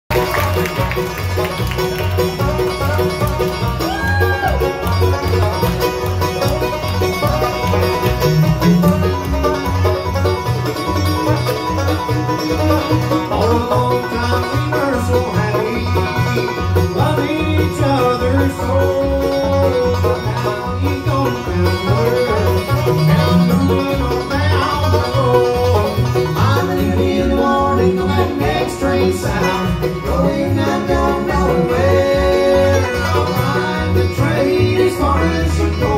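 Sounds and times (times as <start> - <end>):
acoustic guitar: 0.1 - 35.9
banjo: 0.1 - 35.9
mandolin: 0.1 - 35.9
plucked upright bass: 0.1 - 35.9.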